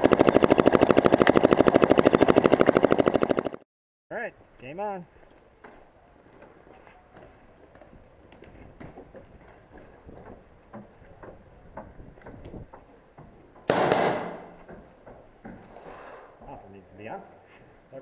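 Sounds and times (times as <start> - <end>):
paintball marker rapid popping: 0.0 - 3.6.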